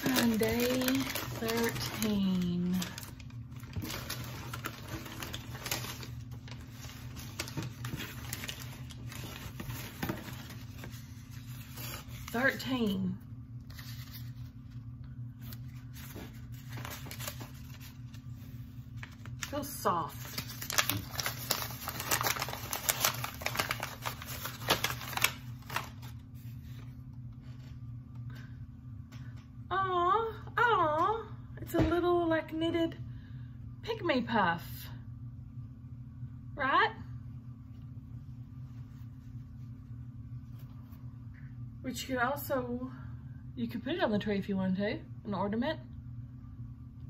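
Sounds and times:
packaging crinkling and rustling: 0.0s - 12.7s, 15.4s - 18.3s, 19.0s - 26.8s
faint low hum: 0.0s - 47.0s.

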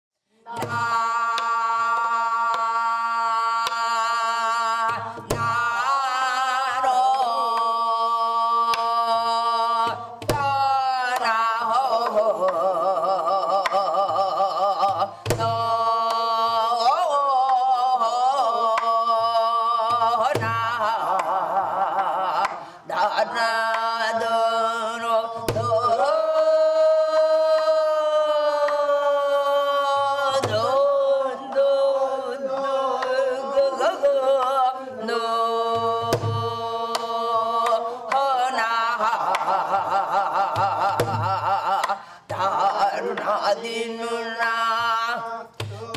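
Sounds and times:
person singing with vibrato: 0.3s - 45.9s.

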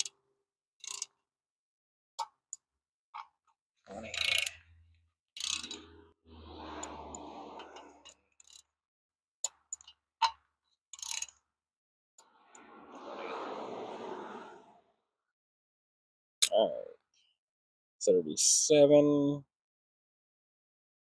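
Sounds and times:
hand ratchet clicking: 0.8s - 1.2s, 4.1s - 4.6s, 5.4s - 5.8s, 11.0s - 11.3s
ratchet rasp: 0.8s - 1.2s, 4.0s - 4.8s, 5.4s - 6.0s, 11.0s - 11.4s.

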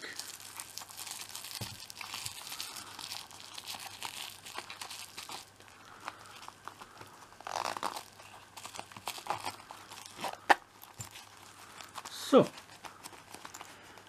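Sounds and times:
plastic bag rustling and crinkling: 0.0s - 14.0s
zipper rasps: 7.4s - 14.0s.

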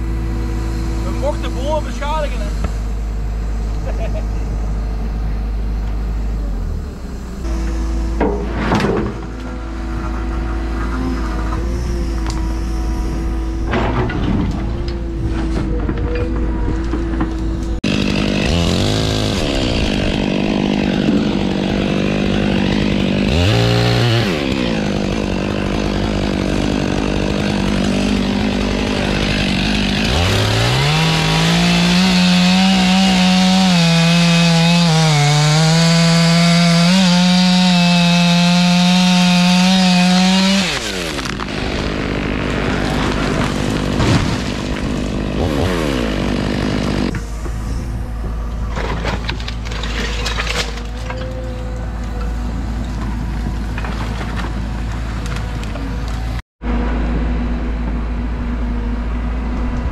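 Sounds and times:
chainsaw running at high revs: 17.8s - 47.2s
chainsaw cutting into wood: 17.8s - 47.3s.

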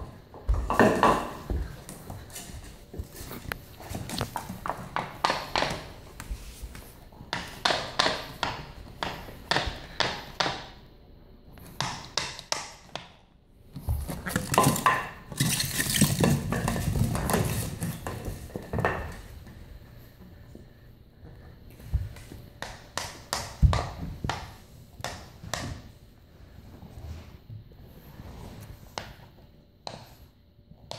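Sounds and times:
plastic bottle clattering on floor: 14.3s - 19.2s.

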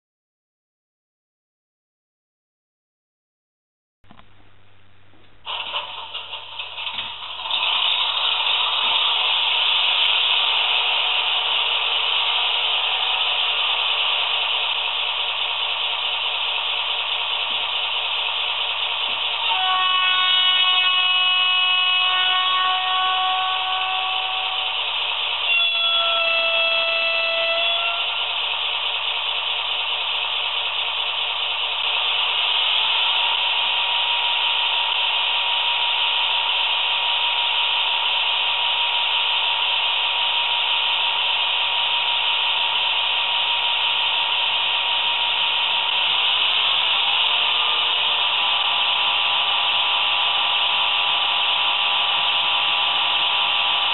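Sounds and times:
hissing diesel engine sound: 5.4s - 53.9s
multi-tone horn blasts: 19.4s - 24.8s, 25.5s - 28.4s.

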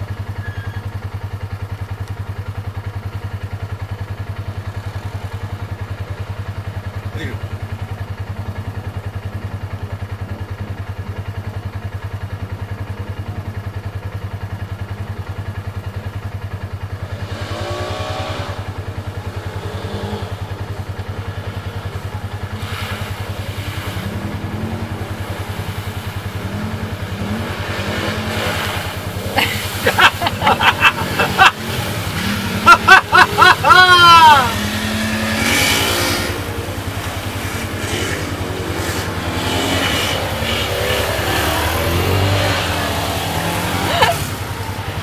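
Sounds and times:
atv engines revving: 0.0s - 45.0s
muddy water splashing: 20.4s - 45.0s.

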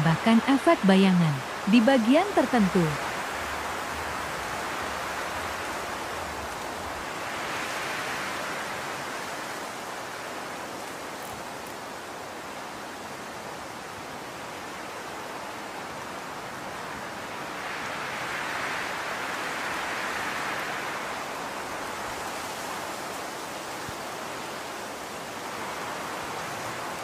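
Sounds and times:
rushing background hiss: 0.0s - 27.0s.

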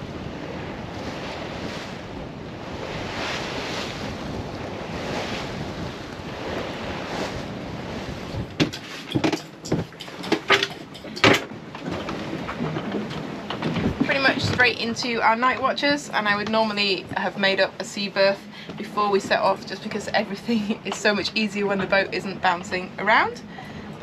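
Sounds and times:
water rushing past hull: 0.0s - 24.0s
wind: 0.0s - 24.0s.

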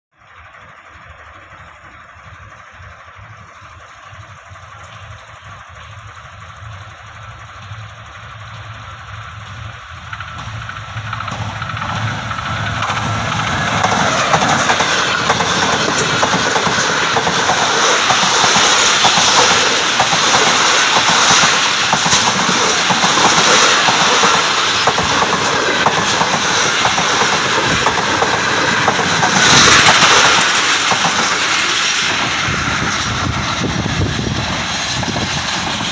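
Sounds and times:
train wheels rushing over rails: 0.2s - 35.9s.

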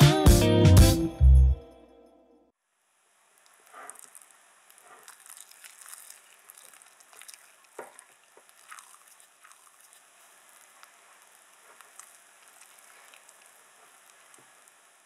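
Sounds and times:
spatula folding thick batter: 3.4s - 15.0s.

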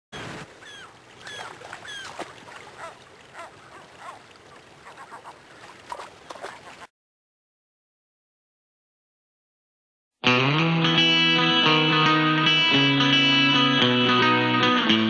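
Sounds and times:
gulls calling: 0.1s - 6.9s
river rushing: 0.2s - 6.8s.

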